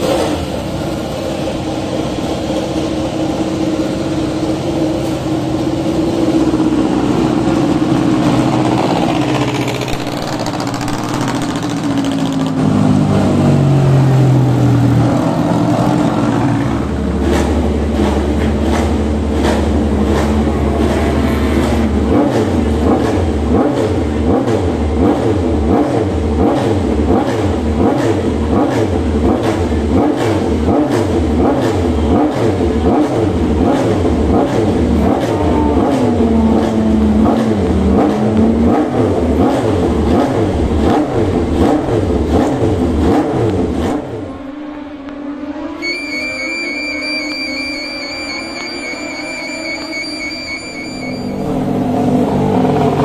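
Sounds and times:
motorcycle engine passing by: 0:08.4 - 0:18.2.

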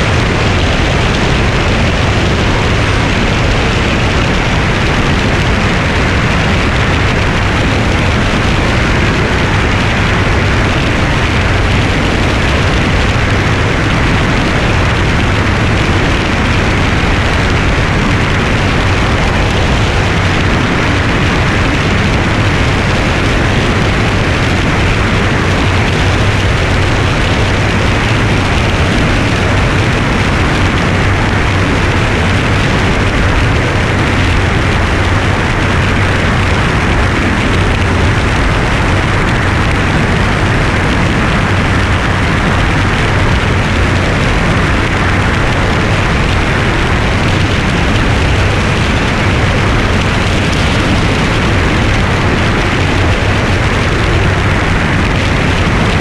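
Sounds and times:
plane engine drone: 0:00.0 - 0:56.0
wind rush and buffeting: 0:00.0 - 0:56.0.

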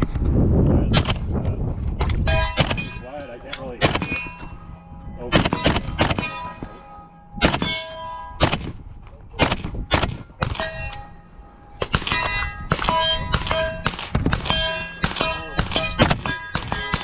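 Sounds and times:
metallic target clang: 0:02.0 - 0:17.0
suppressed rifle shots: 0:03.8 - 0:04.3, 0:05.4 - 0:06.6.

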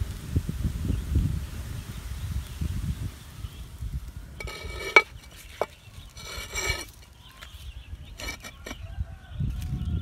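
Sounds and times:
lid scraping on clay pot: 0:04.4 - 0:07.1, 0:08.1 - 0:08.8.

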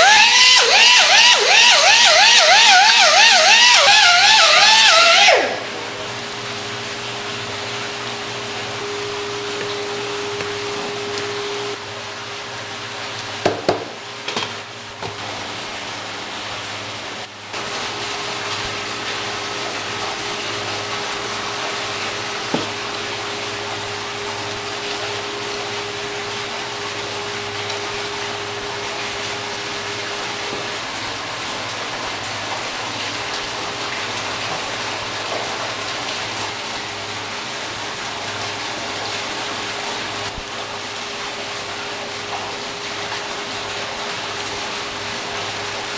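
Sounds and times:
running water: 0:00.0 - 0:45.9
steady tone: 0:04.4 - 0:11.8
low machine hum: 0:04.4 - 0:45.9
sharp knocks: 0:13.4 - 0:14.4.

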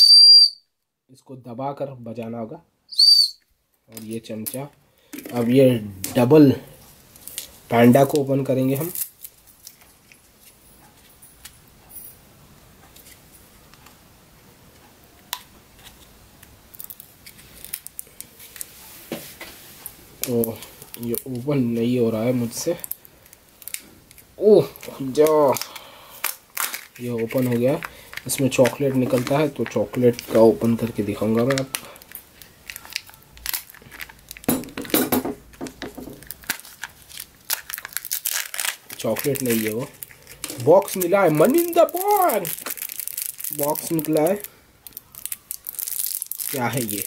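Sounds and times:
foil wrapper crinkling: 0:07.1 - 0:10.6, 0:16.7 - 0:18.8, 0:20.2 - 0:47.0
plastic capsule clicks and creaks: 0:22.8 - 0:47.0.

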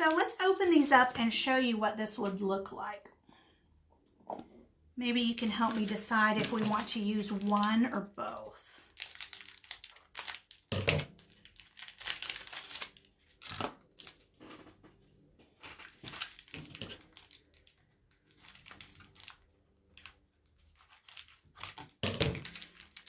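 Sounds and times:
packaging crinkling and tearing: 0:05.5 - 0:08.0, 0:08.8 - 0:14.8, 0:15.6 - 0:23.0.

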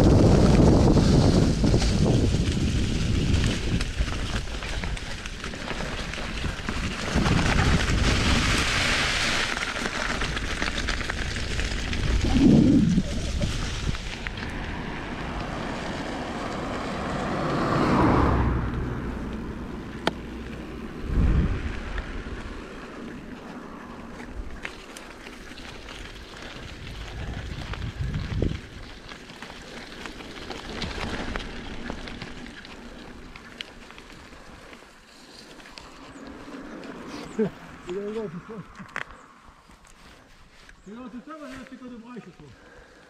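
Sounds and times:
wind buffeting microphone: 0:00.0 - 0:24.6, 0:25.6 - 0:29.2
bike tyres rolling on trail: 0:00.0 - 0:43.0.

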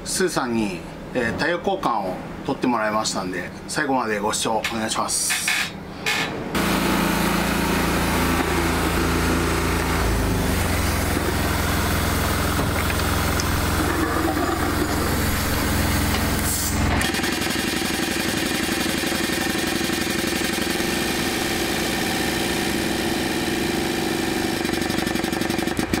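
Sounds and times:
pulsing engine hum: 0:06.6 - 0:17.0
heavy engine idling: 0:06.9 - 0:26.0.

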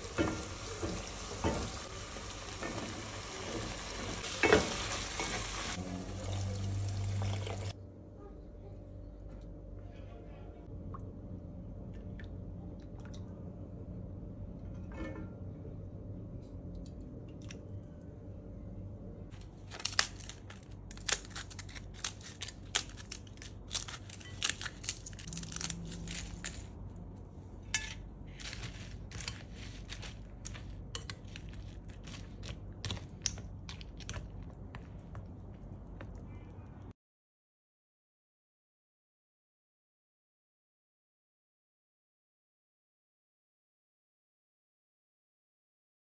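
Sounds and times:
low steady hum: 0:00.0 - 0:36.9
flatbread tearing and crackling: 0:19.4 - 0:26.8.

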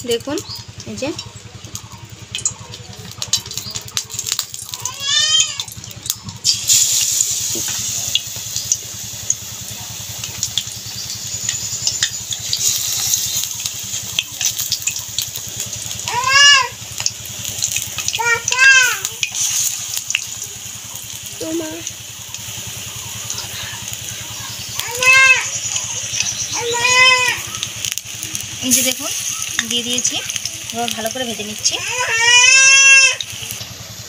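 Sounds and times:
meat frying in hot oil: 0:00.0 - 0:34.0
animal call: 0:22.8 - 0:30.4, 0:31.7 - 0:33.6.

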